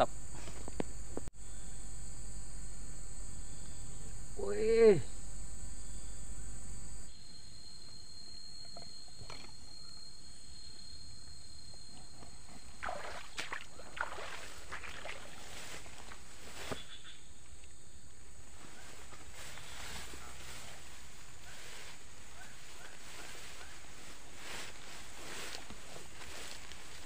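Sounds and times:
outdoor background noise: 0:00.0 - 0:27.0
footsteps brushing through grass: 0:12.8 - 0:17.1, 0:18.5 - 0:27.0.

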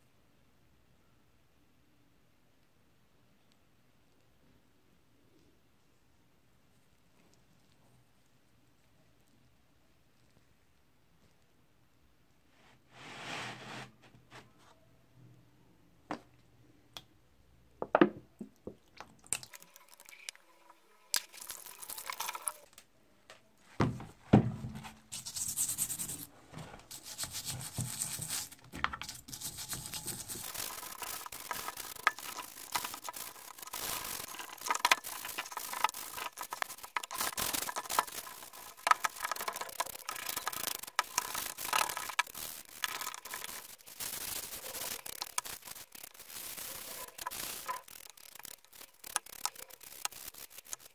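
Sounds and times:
scrubbing metal in soapy water: 0:25.0 - 0:50.9.

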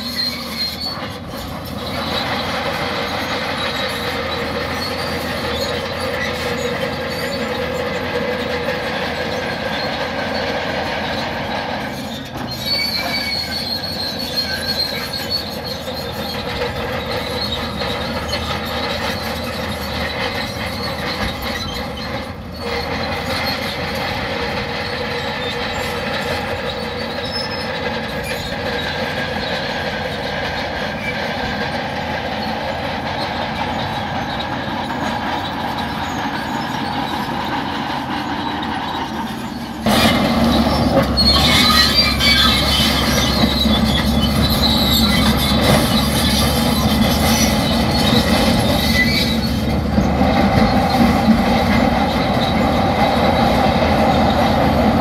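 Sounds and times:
brief high squeal: 0:00.0 - 0:02.4, 0:11.9 - 0:16.4, 0:38.2 - 0:49.7
bulldozer diesel engine: 0:00.0 - 0:55.0
steel tracks running: 0:00.0 - 0:55.0.

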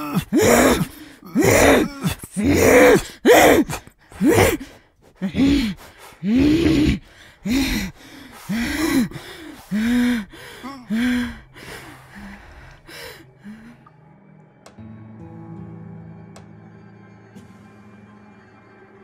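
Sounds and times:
woman gasping in distress: 0:00.0 - 0:13.9.

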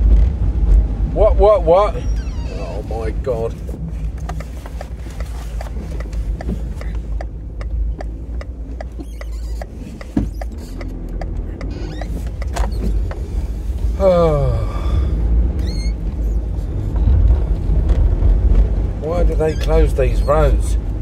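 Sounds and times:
car engine and road noise: 0:00.0 - 0:21.0
turn indicator ticking: 0:03.5 - 0:13.8.

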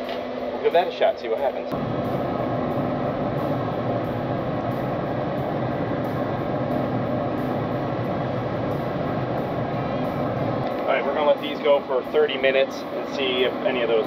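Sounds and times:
grill fan whooshing: 0:00.0 - 0:14.0.

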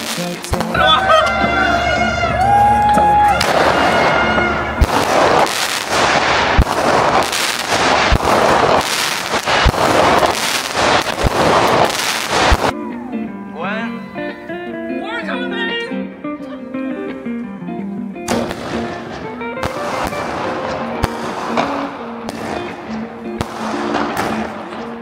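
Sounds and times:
fireworks crackling: 0:00.0 - 0:12.8, 0:18.3 - 0:25.0.

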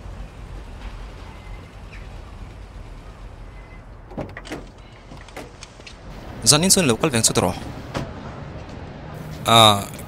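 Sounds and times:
low street rumble: 0:00.0 - 0:10.0
vehicle door clicks and knocks: 0:04.1 - 0:05.6.

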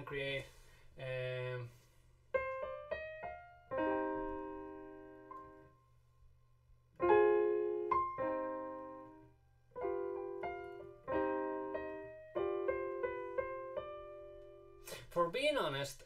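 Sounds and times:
piano melody in minor key: 0:02.3 - 0:06.1, 0:06.9 - 0:14.9.

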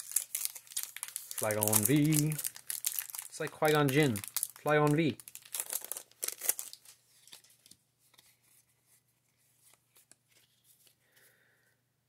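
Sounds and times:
foil wrapper crinkling: 0:00.0 - 0:07.8
cards rustling and ticking: 0:00.0 - 0:11.3.

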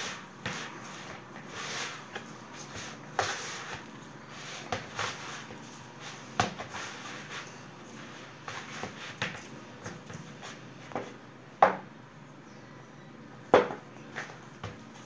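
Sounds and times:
hands kneading dough: 0:00.0 - 0:11.2.

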